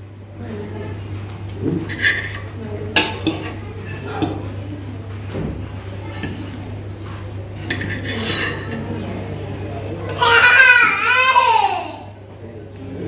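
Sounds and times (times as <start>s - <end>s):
cutlery clinking on a plate: 1.7s - 4.6s, 7.6s - 9.0s.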